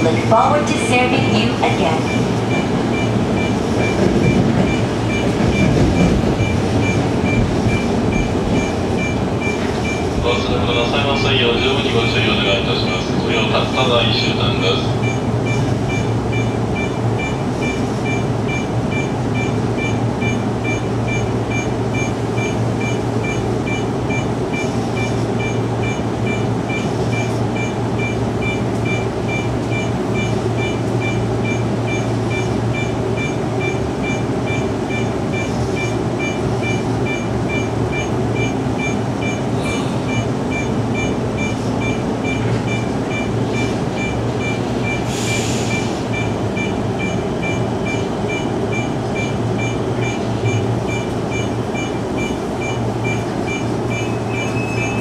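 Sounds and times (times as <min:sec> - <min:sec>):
train running hum and rumble: 0:00.0 - 0:55.0
fast high-pitched beeping: 0:45.7 - 0:55.0.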